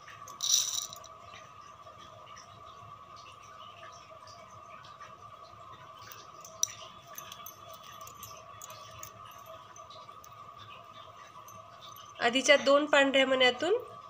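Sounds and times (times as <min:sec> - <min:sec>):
faint steady hum: 0:00.0 - 0:14.0
beads clicking and clinking: 0:00.3 - 0:01.1, 0:06.0 - 0:09.6.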